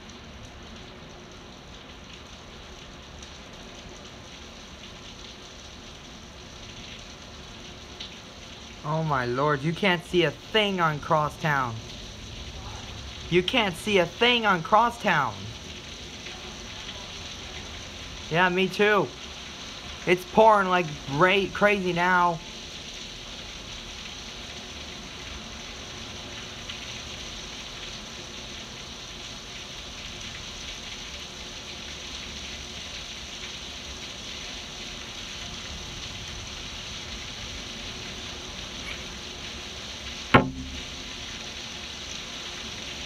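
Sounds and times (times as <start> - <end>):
heavy rain pouring: 0.0 - 43.0
loud thump: 40.4 - 41.0.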